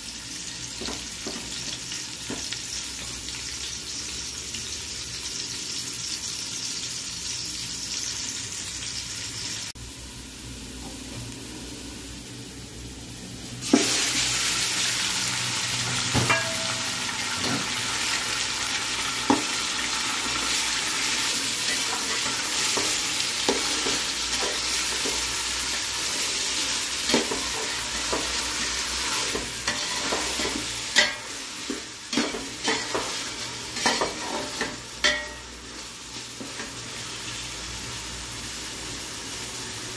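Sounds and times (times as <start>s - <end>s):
meat sizzling: 0.0s - 10.6s, 13.2s - 39.9s
onions sizzling in oil: 0.0s - 39.9s.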